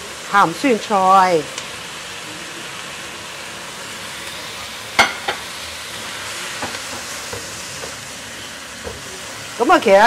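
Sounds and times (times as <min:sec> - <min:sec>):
food sizzling in a wok: 0:00.0 - 0:10.0
utensil knocking against pan: 0:05.0 - 0:05.4.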